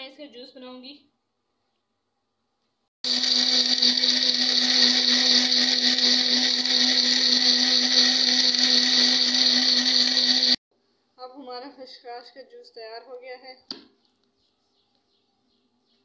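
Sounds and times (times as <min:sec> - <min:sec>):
electric blender running: 0:03.0 - 0:10.6.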